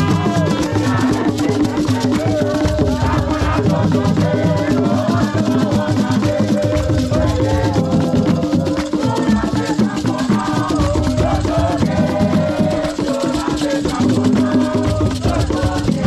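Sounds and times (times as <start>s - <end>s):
drum ensemble playing: 0.0s - 10.0s
rattling shaker: 0.0s - 16.0s.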